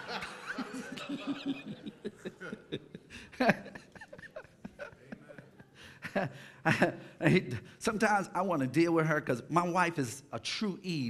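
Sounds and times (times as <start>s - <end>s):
crowd laughing: 0.0s - 7.1s.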